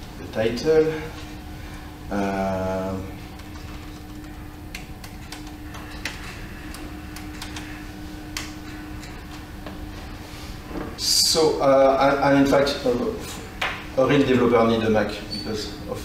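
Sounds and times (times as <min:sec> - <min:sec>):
steady hum: 0:00.0 - 0:16.0
keyboard typing clicks: 0:03.4 - 0:09.4.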